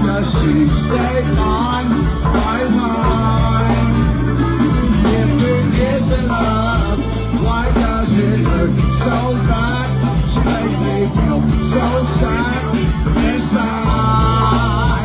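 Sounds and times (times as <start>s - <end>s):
bass line: 0.0s - 15.0s
voices singing: 0.0s - 15.0s.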